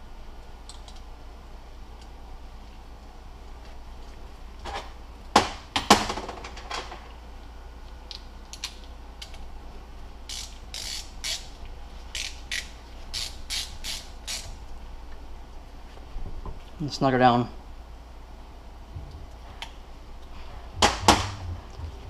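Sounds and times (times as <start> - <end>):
socket ratchet clicking: 10.3 - 11.5, 12.2 - 14.5
sharp knocks: 20.8 - 21.6.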